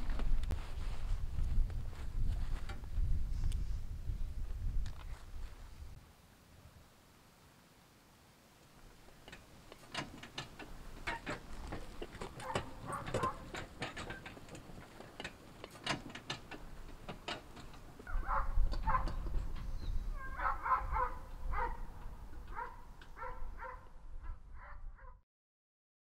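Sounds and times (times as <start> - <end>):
horse cart clicking and rattling: 9.1 - 23.8.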